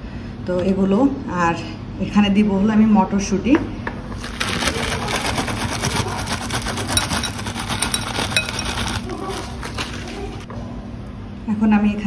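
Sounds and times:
frozen peas rattling into glass bowl: 4.2s - 10.5s.

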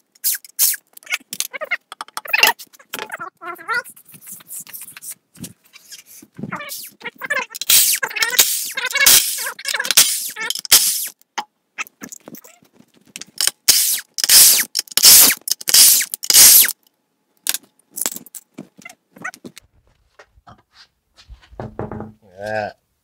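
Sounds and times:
impact wrench bursts: 7.6s - 11.2s, 13.4s - 16.8s.

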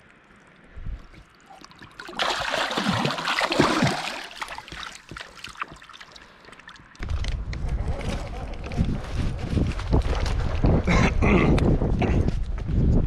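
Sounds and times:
water trickling and dripping: 0.0s - 7.0s
fish splashing in shallow water: 0.3s - 7.0s.

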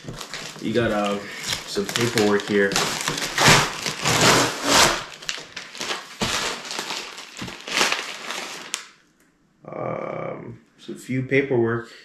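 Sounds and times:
packaging crinkling and rustling: 0.0s - 9.0s.

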